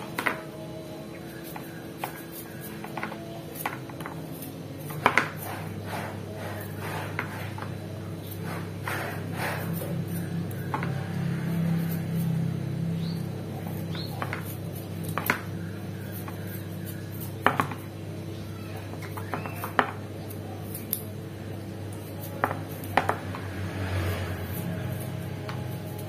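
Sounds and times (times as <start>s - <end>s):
knife scraping and clicking: 19.0s - 21.1s.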